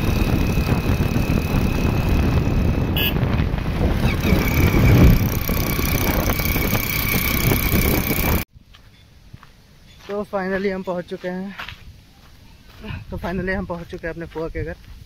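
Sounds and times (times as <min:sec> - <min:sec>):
small motorcycle engine running: 0:00.0 - 0:08.5
wind rushing over microphone: 0:00.0 - 0:08.5.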